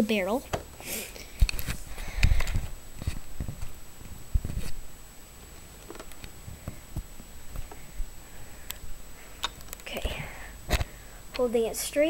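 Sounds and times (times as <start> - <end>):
handling noise clicks and knocks: 5.8 - 6.4.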